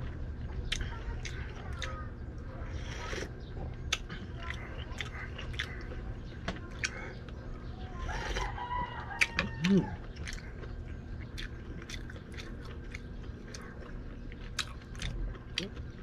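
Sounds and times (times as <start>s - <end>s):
rooster crowing: 8.1s - 10.1s
eating by hand smacks: 9.2s - 15.9s.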